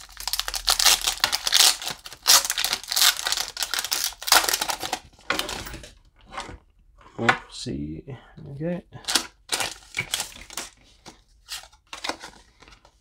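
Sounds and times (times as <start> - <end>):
foil wrapper tearing and crinkling: 0.0 - 5.0.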